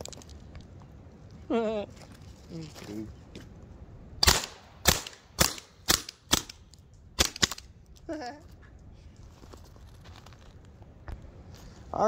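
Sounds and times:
launcher firing shots: 0:04.2 - 0:06.6, 0:07.2 - 0:07.7.

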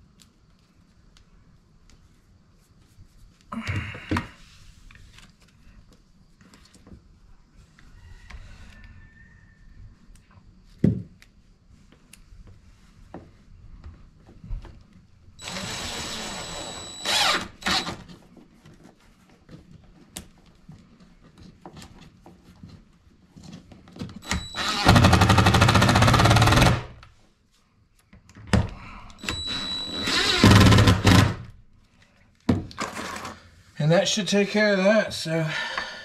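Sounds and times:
cordless drill driving screws: 0:15.4 - 0:18.1, 0:24.2 - 0:26.9, 0:29.2 - 0:31.5.

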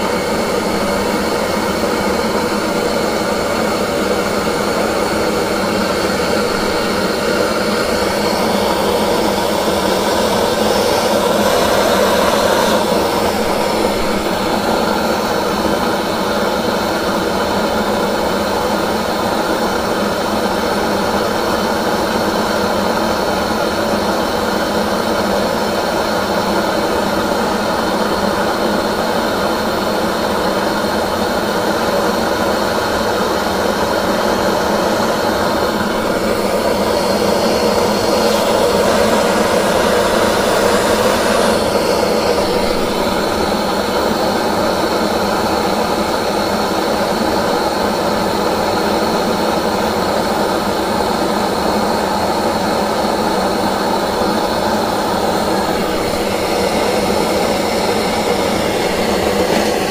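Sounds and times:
gas torch hissing: 0:00.0 - 0:16.4, 0:31.9 - 0:47.0, 0:53.9 - 0:59.9.

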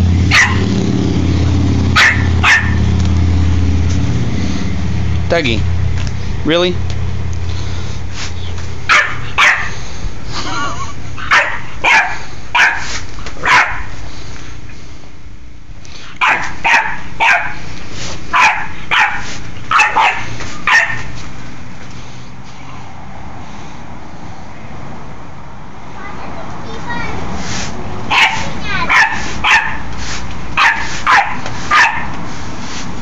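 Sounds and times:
puppy barking in high yips: 0:00.3 - 0:00.7, 0:02.0 - 0:02.8, 0:08.9 - 0:09.7, 0:11.3 - 0:13.9, 0:16.2 - 0:17.6, 0:18.3 - 0:21.1, 0:28.1 - 0:29.9, 0:30.6 - 0:32.1.

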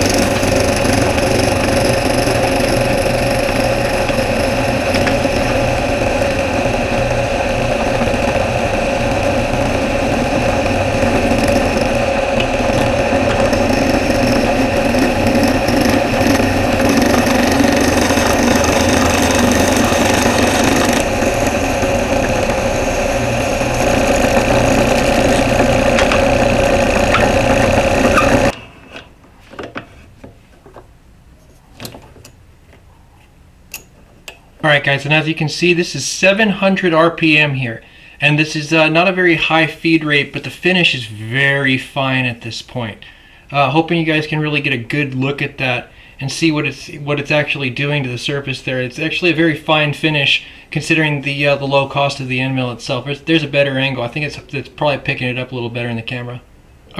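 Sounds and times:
drill press motor hum and whine: 0:00.0 - 0:28.8
end mill rasping wood: 0:00.0 - 0:29.1.

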